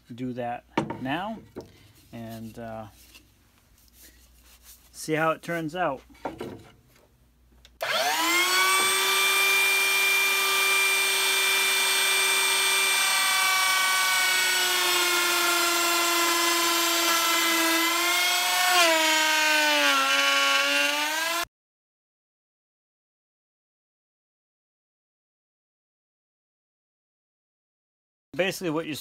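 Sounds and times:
router whining: 7.8s - 21.5s.

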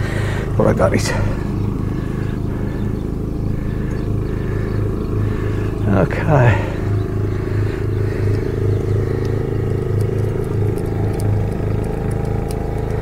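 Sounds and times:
engine idling: 0.0s - 13.0s
faint light ticks: 9.1s - 13.0s.

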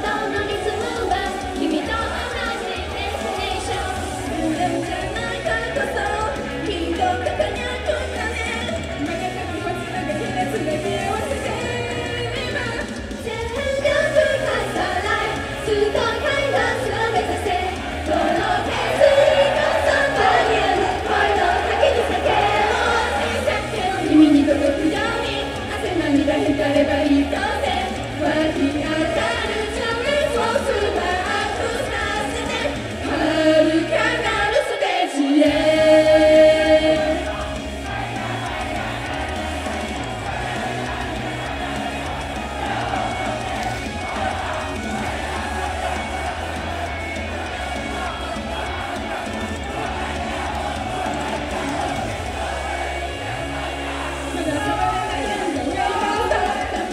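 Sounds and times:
amplified backing music: 0.0s - 56.9s
women singing: 0.0s - 56.9s
pop backing track: 35.4s - 52.8s.

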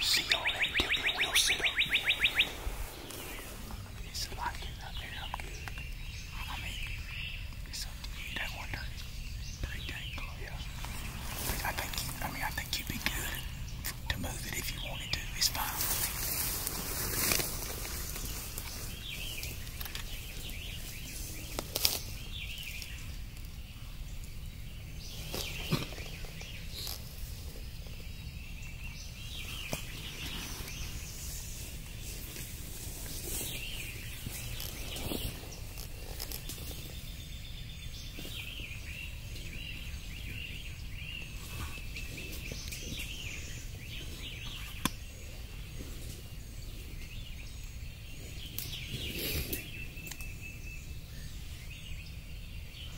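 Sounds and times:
songbirds chirping: 0.0s - 52.9s
steady low rumble: 0.0s - 52.9s.

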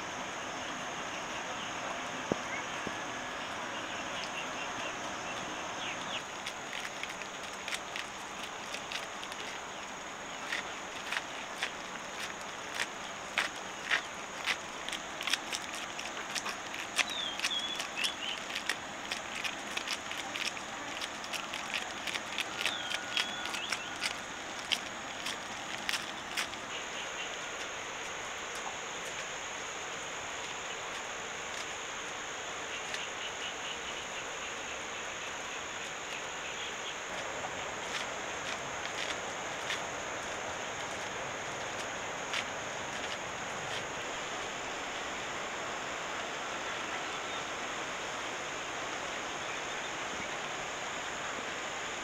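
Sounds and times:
high insect drone: 0.0s - 52.0s
soft steady hiss: 0.0s - 52.0s
clicks and crackles: 6.1s - 26.7s.

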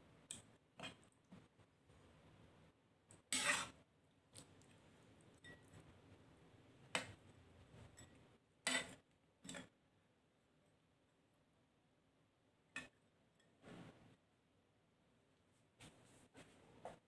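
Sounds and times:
ladle scraping and knocking wok: 3.3s - 3.8s, 7.9s - 9.7s.

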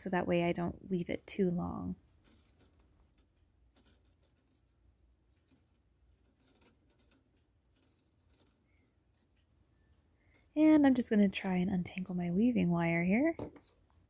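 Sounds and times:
faint wire ticks and rustles: 2.0s - 10.6s.

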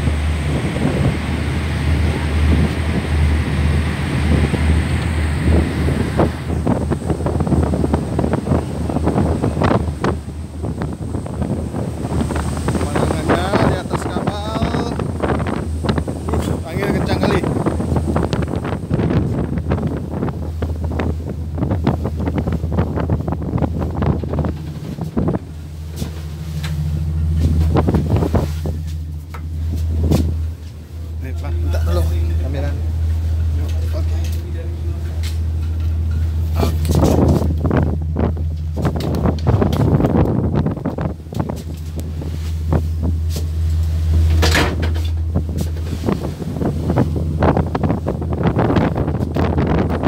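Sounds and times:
ship engines droning: 0.0s - 50.0s
wind buffeting microphone: 0.0s - 50.0s
knocks and clunks: 44.2s - 45.9s.

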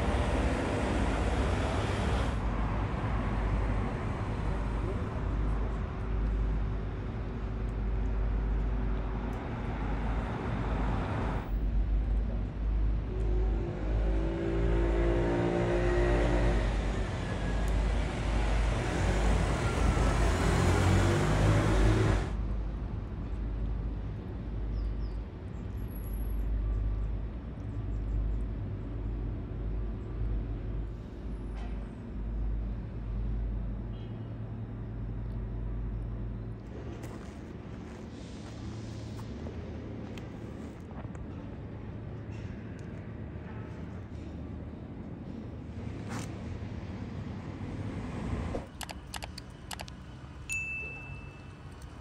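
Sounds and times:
vehicle engine: 0.0s - 22.4s
traffic rumble: 0.0s - 52.0s.

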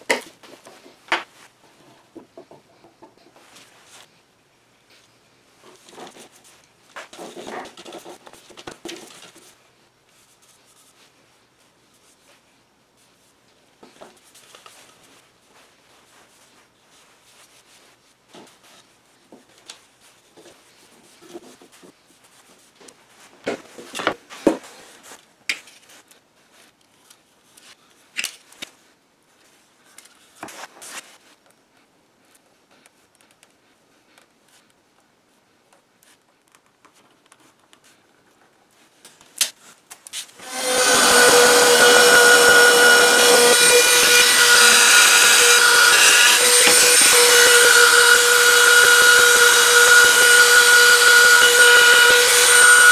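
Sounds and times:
pencil scratching on wood: 40.5s - 52.9s.

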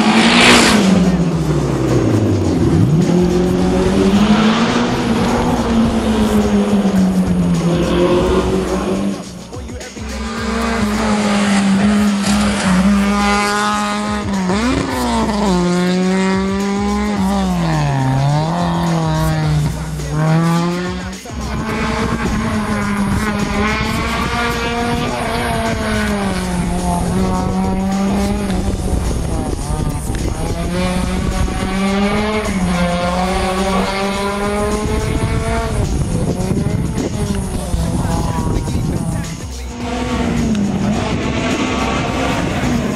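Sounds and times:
rally car engine revving: 0.0s - 42.9s.

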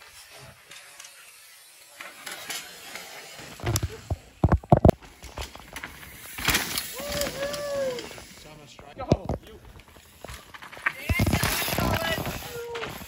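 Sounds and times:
mountain bike clattering over roots: 0.2s - 13.0s.

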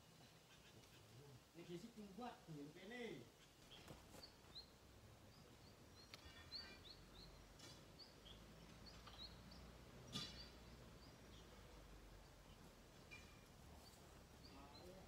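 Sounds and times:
faint bird chirps: 0.1s - 1.8s, 3.2s - 15.0s.

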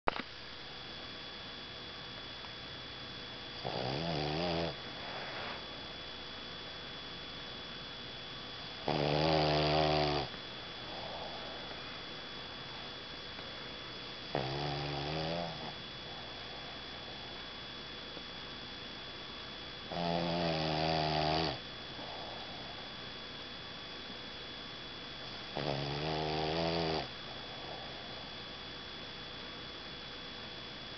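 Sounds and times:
dog snoring: 3.6s - 5.7s, 8.8s - 12.0s, 14.2s - 17.4s, 19.8s - 22.9s, 25.3s - 28.4s.

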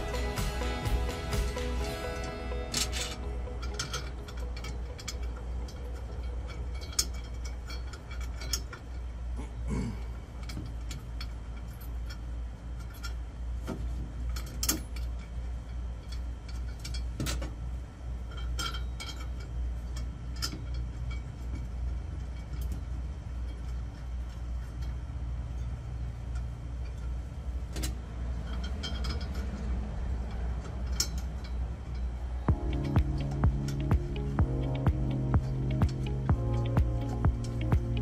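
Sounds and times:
low hum: 0.0s - 38.0s.

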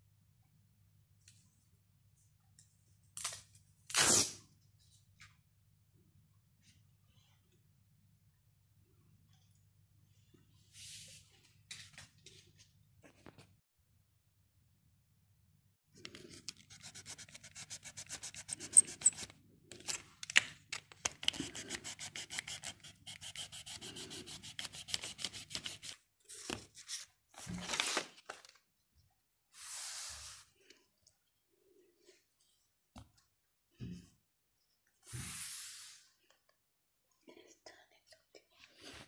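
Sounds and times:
paper scraping and rustling: 24.9s - 28.6s.

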